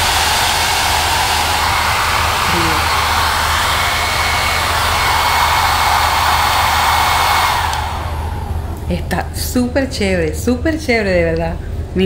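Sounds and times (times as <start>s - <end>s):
hair dryer running: 0.0s - 8.9s.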